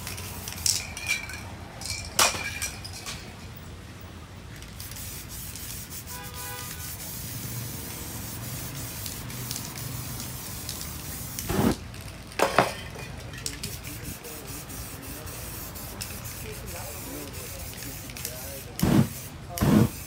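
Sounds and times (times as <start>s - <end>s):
spray paint can hissing: 0.0s - 0.9s, 4.6s - 12.1s, 13.4s - 20.0s.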